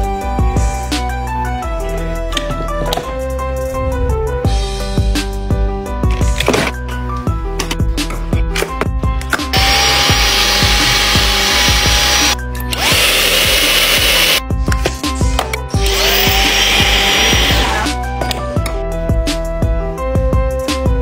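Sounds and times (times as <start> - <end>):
music: 0.0 - 21.0
stick vacuum running: 9.6 - 14.4, 15.9 - 17.8.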